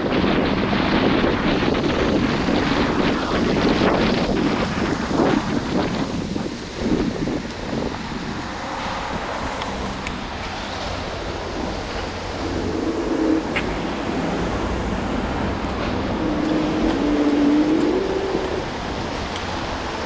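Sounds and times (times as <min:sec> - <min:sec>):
wind buffeting microphone: 0:00.0 - 0:20.0
street traffic: 0:00.2 - 0:20.0
low wavering tone: 0:11.3 - 0:18.8.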